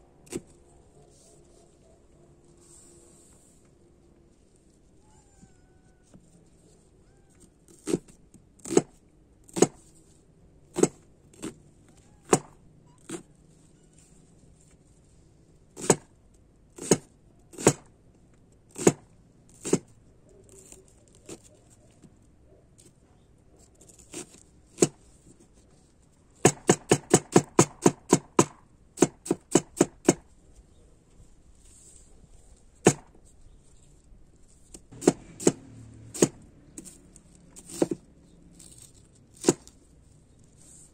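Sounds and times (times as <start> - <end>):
cleaver chopping on wooden board: 7.7 - 9.8, 10.7 - 11.5, 15.8 - 16.1, 16.8 - 17.9, 18.8 - 19.0, 26.4 - 30.2, 32.8 - 33.1, 34.9 - 36.9, 37.6 - 38.0, 39.4 - 39.7.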